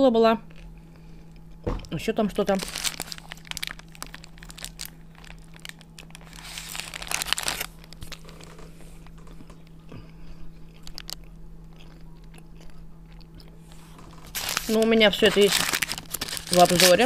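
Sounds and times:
paper wrapper crinkling: 0:02.3 - 0:09.5, 0:10.8 - 0:11.2, 0:13.7 - 0:17.0
chewing: 0:08.2 - 0:14.2.

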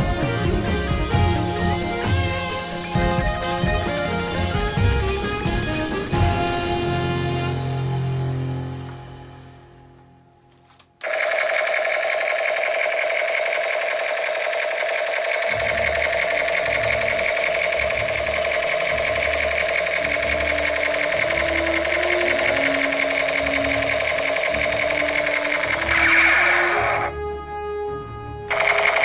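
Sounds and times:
low pulsing electronic tones: 0:11.0 - 0:27.1, 0:28.5 - 0:29.0
toy gun buzzing rattle: 0:11.0 - 0:27.1, 0:28.5 - 0:29.0.

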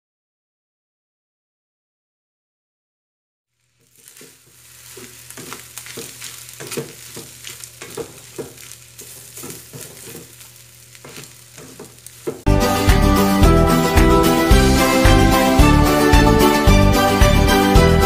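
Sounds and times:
rice sizzling in pan: 0:03.6 - 0:12.5
spatula scraping pan: 0:03.7 - 0:12.5
loud music: 0:12.5 - 0:18.0.

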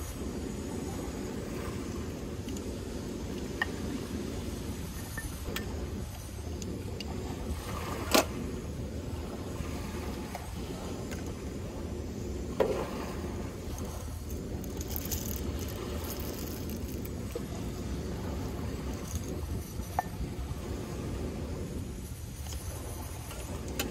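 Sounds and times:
coffee beans rattling into grinder: 0:13.7 - 0:17.4, 0:18.9 - 0:19.8.

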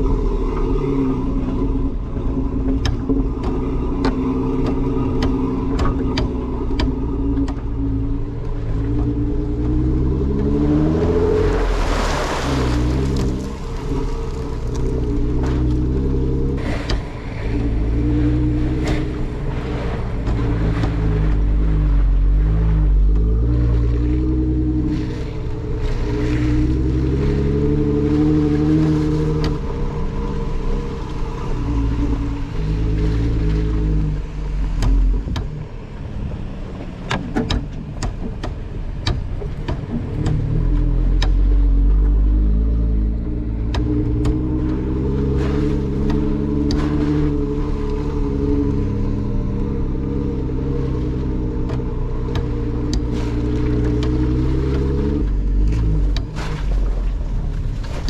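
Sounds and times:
car engine running: 0:00.0 - 0:58.0
sharp clicks and knocks: 0:02.6 - 0:09.2, 0:34.6 - 0:35.8, 0:36.8 - 0:42.2, 0:43.1 - 0:45.0, 0:51.4 - 0:56.8.

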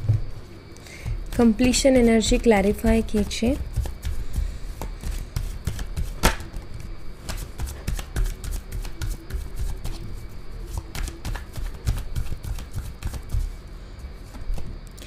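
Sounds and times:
cards being shuffled: 0:07.2 - 0:10.0, 0:10.7 - 0:13.4.

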